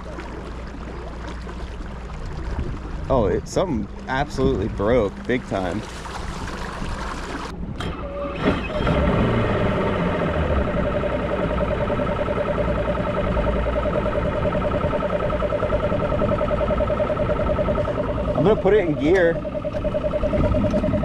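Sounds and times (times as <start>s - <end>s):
outboard motor idling: 0.0s - 21.0s
rapidly pulsing whine: 8.9s - 21.0s.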